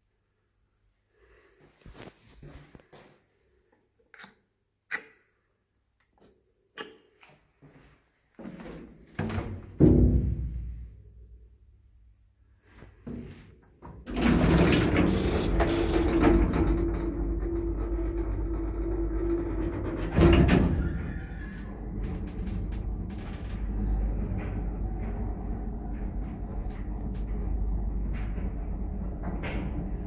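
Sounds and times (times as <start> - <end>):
lift car rumbling: 14.0 - 30.0
sliding lift doors closing: 14.0 - 30.0
lift motor hum: 14.1 - 30.0.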